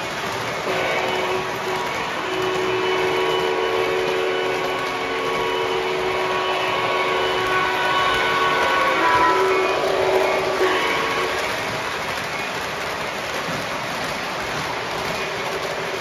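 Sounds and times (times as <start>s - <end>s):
model train motors whining: 0.0s - 16.0s
wheels rumbling on rails: 0.0s - 16.0s.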